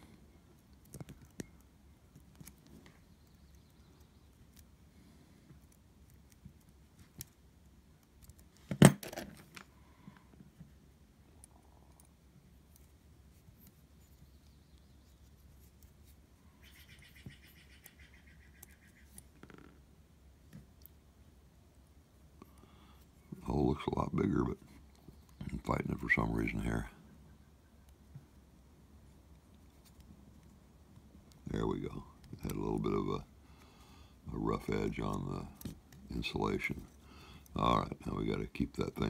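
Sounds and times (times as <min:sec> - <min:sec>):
small clicks and taps of metal tools: 0:00.6 - 0:03.0.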